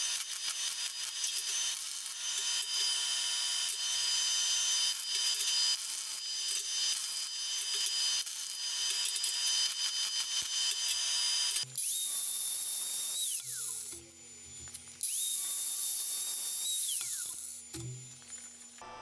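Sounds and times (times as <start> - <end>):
angle grinder grinding steel: 0.0 - 18.9.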